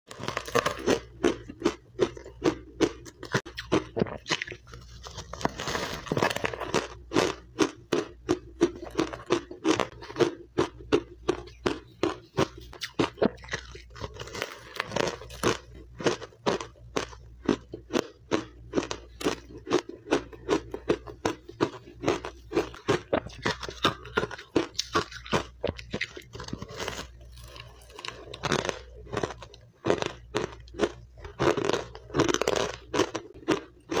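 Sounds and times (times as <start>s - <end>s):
ice crunching as chewed: 0.1s - 34.0s.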